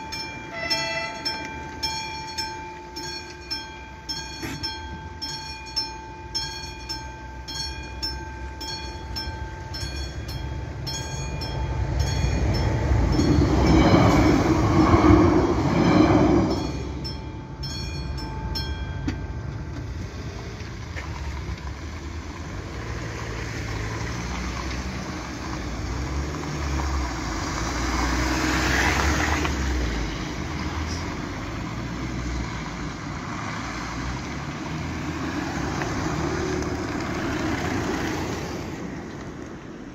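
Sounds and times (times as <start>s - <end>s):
crossing bell ringing: 0.0s - 20.5s, 29.8s - 32.4s
cars driving: 0.0s - 39.9s
train passing: 0.0s - 39.9s.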